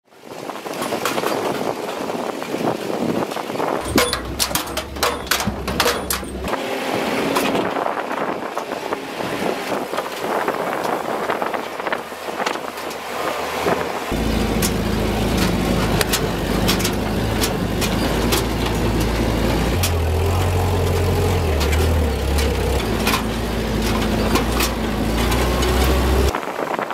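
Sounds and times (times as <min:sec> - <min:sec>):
body rattles and knocks: 0:03.2 - 0:06.5, 0:14.1 - 0:26.4
van engine running: 0:03.8 - 0:06.8, 0:09.8 - 0:26.4.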